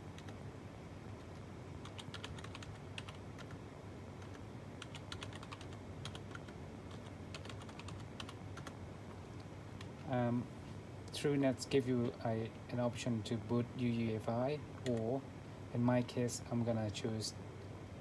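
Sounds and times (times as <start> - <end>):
keyboard typing clicks: 1.3 - 3.6, 4.2 - 8.8.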